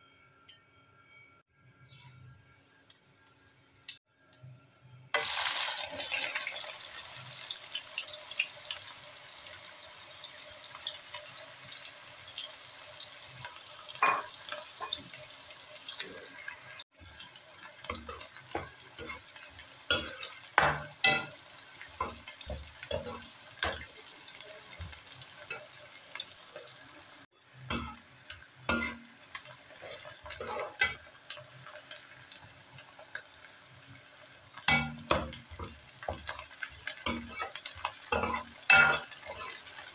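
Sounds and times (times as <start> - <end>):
onions sizzling in hot oil: 5.1 - 39.9
metal ladle scraping a pan: 28.7 - 29.0, 29.7 - 31.1, 34.7 - 39.8.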